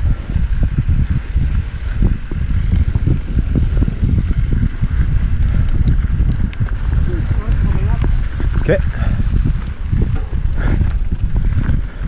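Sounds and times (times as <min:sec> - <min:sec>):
bike tyres and frame rattling: 0:00.0 - 0:12.0
wind buffeting microphone: 0:00.0 - 0:12.0
sharp ticks: 0:02.3 - 0:03.8, 0:04.4 - 0:08.1.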